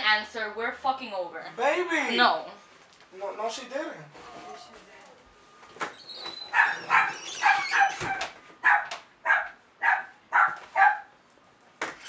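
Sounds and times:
dog barking: 6.5 - 11.1.

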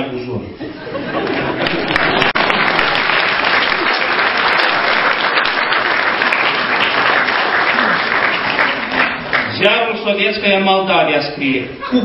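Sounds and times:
audience applause: 1.2 - 9.7.

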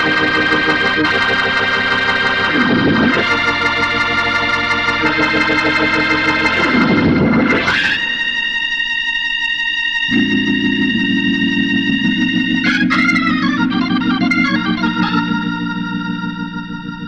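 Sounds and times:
held organ chords: 0.0 - 17.0.

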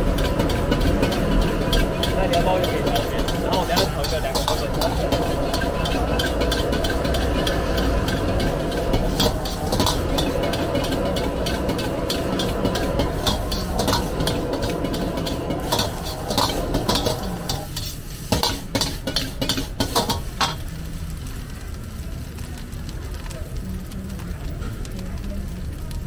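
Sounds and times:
metal ladle scraping a wok: 0.0 - 20.7
gas burner rushing: 0.0 - 21.8
food sizzling: 0.0 - 26.0.

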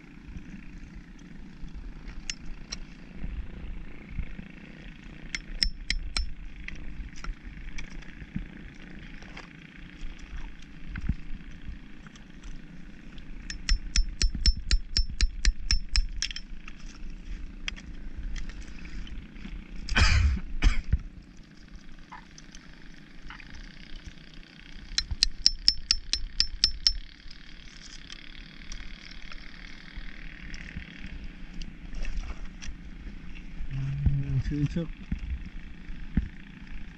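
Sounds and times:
hammer tapping metal blade: 5.4 - 6.3, 13.5 - 16.4, 25.0 - 27.0.

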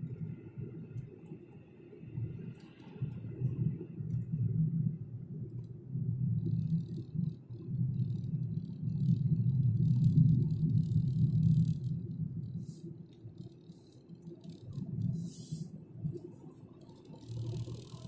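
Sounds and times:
car engine and tyre rumble: 0.0 - 18.0
faint crackling rattles: 6.4 - 18.0.

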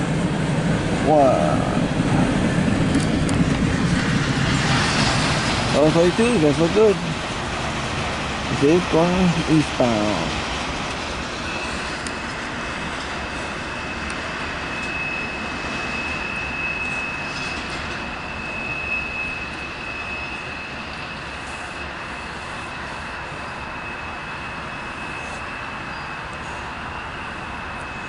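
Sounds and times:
train wheels rumbling on track: 0.0 - 28.0
high-pitched wheel squeal: 11.4 - 28.0.

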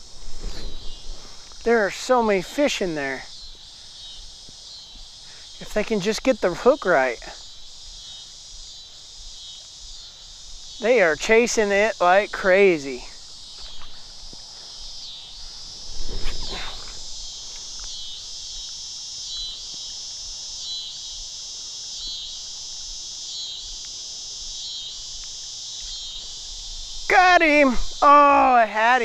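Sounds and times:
insects buzzing: 0.0 - 29.0.

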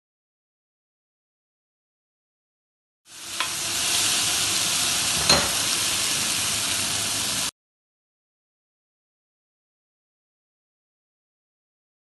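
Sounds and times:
vegetables sizzling in a pan: 3.1 - 7.5.

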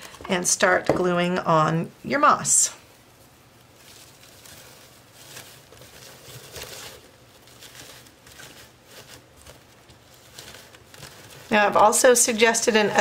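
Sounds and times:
dried moss rustling and crackling: 3.1 - 13.0.

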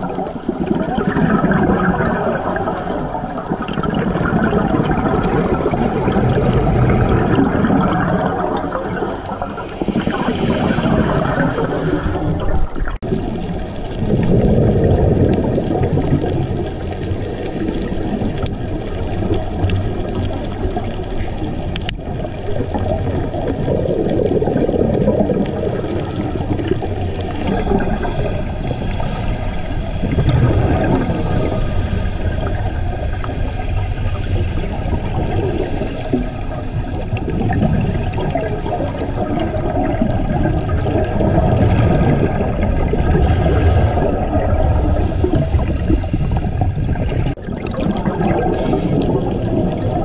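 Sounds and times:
exhaled bubbles gurgling: 0.0 - 50.0
regulator hissing inhale: 2.2 - 3.5, 8.2 - 12.7, 16.6 - 18.5, 25.4 - 27.5, 28.9 - 29.6, 30.8 - 33.7, 43.2 - 46.8, 48.6 - 49.4.

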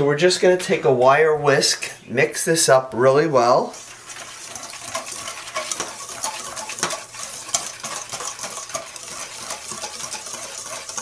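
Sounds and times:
whisk swishing in flour: 3.6 - 11.0.

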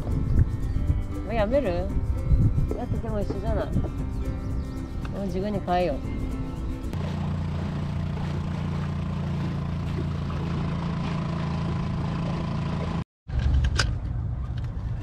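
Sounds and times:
low steady rumble: 0.0 - 15.0
outboard motor running: 1.3 - 13.0.

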